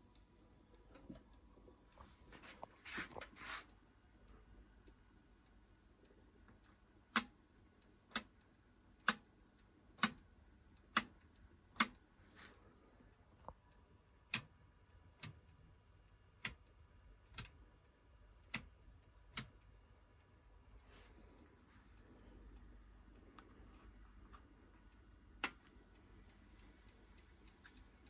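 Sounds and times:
sharp clicks: 21.4s - 28.0s.

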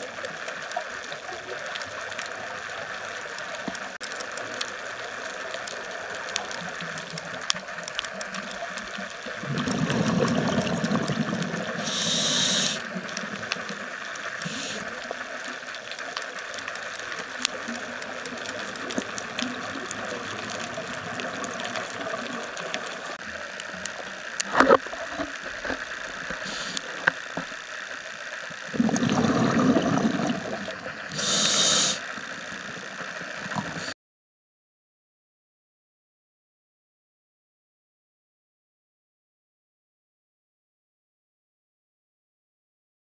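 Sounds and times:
steady underwater hiss: 0.0s - 34.0s
exhaled bubbles: 8.2s - 15.2s, 28.6s - 32.0s
diver breathing through regulator: 11.7s - 12.9s, 14.4s - 14.9s, 26.4s - 27.1s, 31.1s - 32.1s.

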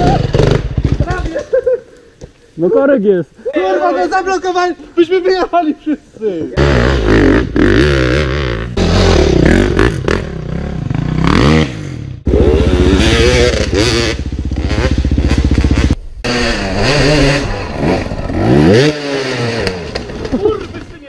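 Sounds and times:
motorcycle engines revving: 0.0s - 1.6s, 6.5s - 21.0s.

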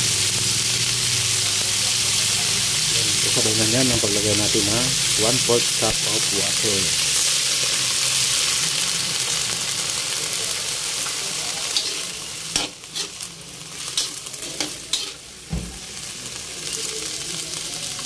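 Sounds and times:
beans sizzling in a wok: 0.0s - 18.0s
metal spatula scraping a wok: 11.7s - 15.3s.

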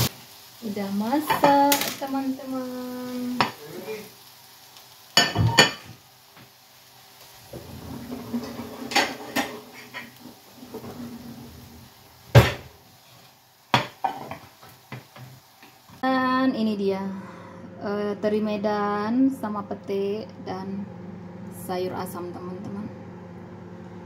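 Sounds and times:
utensils clacking on frying pan: 1.2s - 2.1s, 5.2s - 6.0s, 8.1s - 10.9s, 13.7s - 15.8s.

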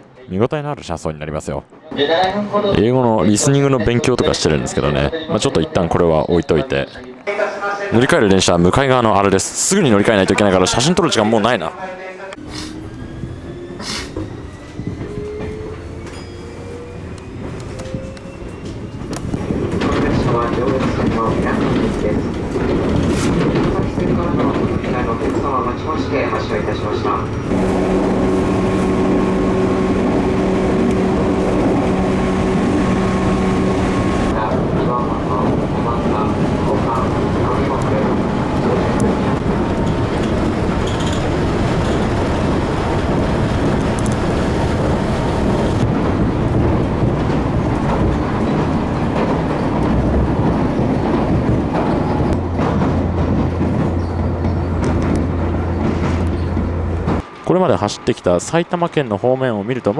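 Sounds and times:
train wheels rumbling: 12.4s - 59.9s
low hum: 27.4s - 34.4s
high steady whine: 27.5s - 34.3s.

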